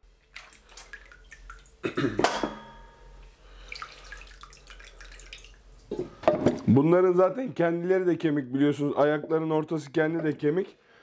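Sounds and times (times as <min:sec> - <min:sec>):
water sloshing and dripping: 0:00.0 - 0:02.0, 0:03.3 - 0:06.6.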